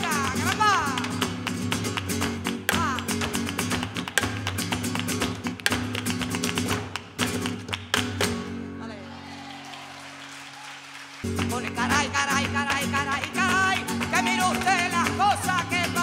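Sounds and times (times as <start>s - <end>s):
percussive dance footwork: 0.0s - 8.5s.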